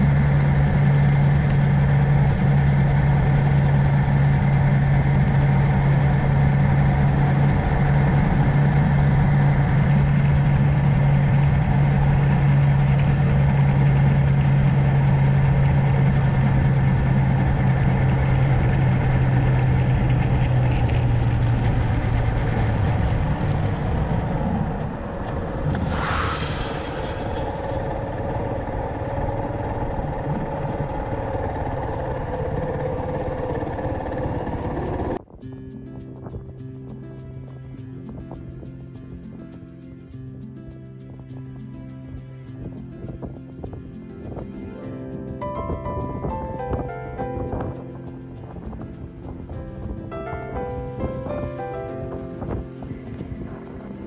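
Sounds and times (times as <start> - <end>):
single-cylinder engine running: 0.0 - 35.3, 40.1 - 54.0
short higher sound: 25.6 - 28.9.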